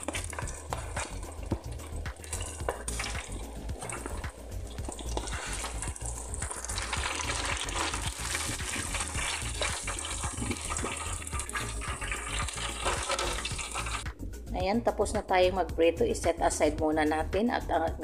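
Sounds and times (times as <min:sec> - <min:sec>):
oil bubbling and sizzling in fryer: 0:00.0 - 0:14.1.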